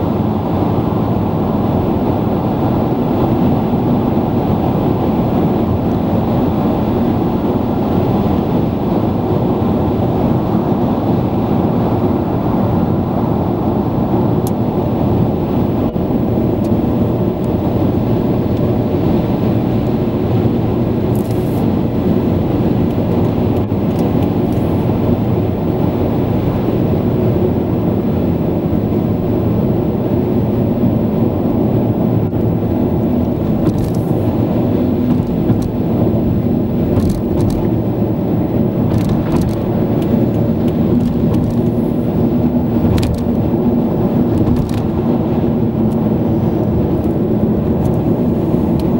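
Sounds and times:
car road noise inside cabin: 0.0s - 48.9s.

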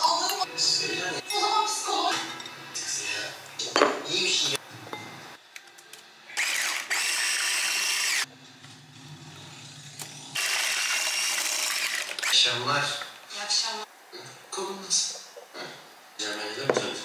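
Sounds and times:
electric hand mixer whining: 6.4s - 8.3s, 9.8s - 12.3s.

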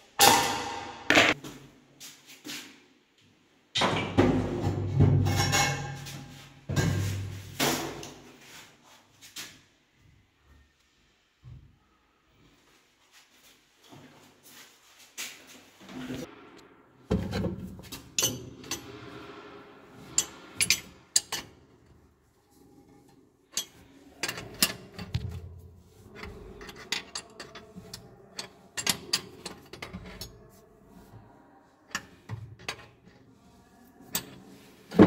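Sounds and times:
wrench clinking on metal nuts: 20.2s - 21.5s.

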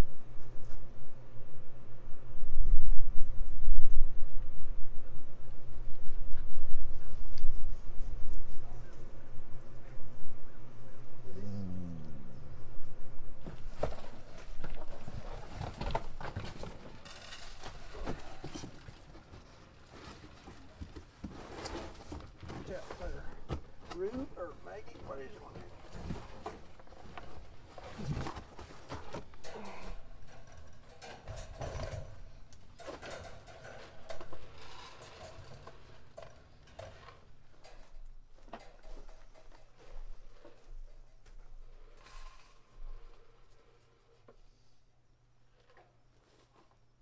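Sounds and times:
rustling: 13.4s - 44.7s
wire cages knocking and rattling: 13.6s - 24.3s, 25.1s - 41.2s.

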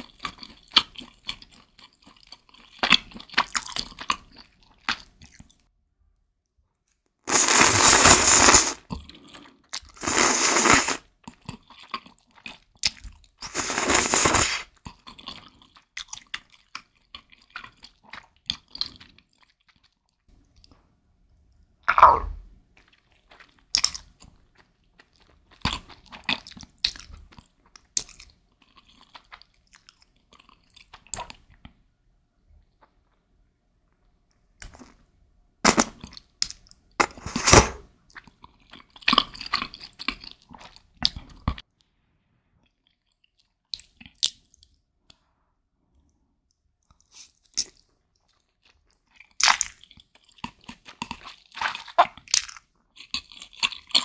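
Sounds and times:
noodle slurping: 7.3s - 8.8s, 10.0s - 11.0s, 13.4s - 14.7s
wet chewing with mouth clicks: 22.8s - 31.8s, 42.6s - 45.2s, 46.8s - 54.0s.

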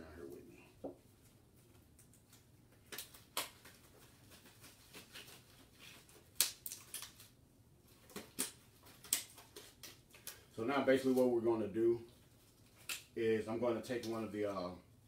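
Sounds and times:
gloves rustling: 0.1s - 14.8s
glove snaps and clicks: 1.9s - 3.9s, 6.3s - 7.4s, 8.0s - 10.5s, 12.8s - 13.2s.

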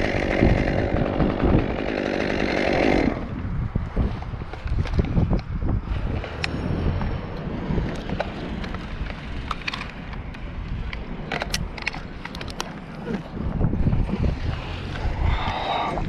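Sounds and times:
chainsaw idling: 0.0s - 3.4s
wind on microphone: 0.0s - 16.0s.

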